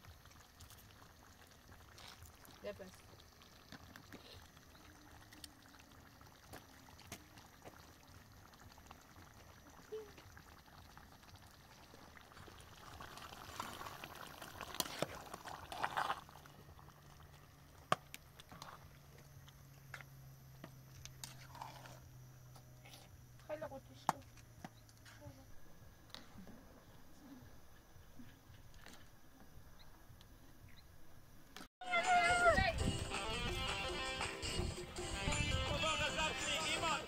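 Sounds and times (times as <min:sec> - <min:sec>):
liquid noise: 0:00.0 - 0:19.0.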